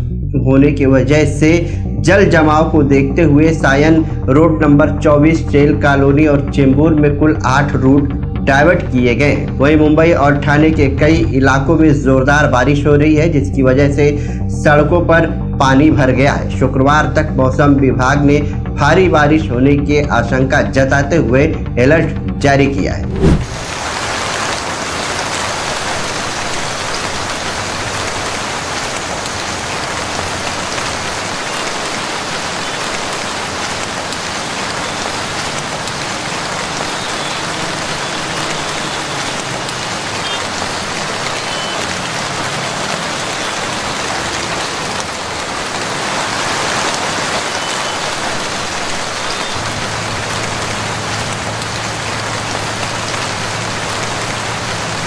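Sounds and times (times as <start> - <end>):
heavy rain falling: 23.2 - 55.0.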